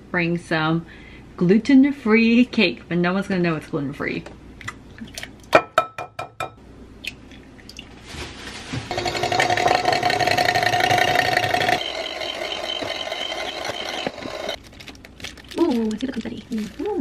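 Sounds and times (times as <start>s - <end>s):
electric hand mixer whisking: 8.9s - 14.6s.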